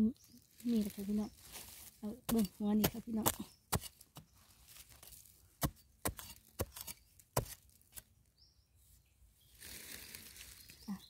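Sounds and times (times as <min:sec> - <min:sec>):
digging tool striking stony soil: 0:02.2 - 0:08.1.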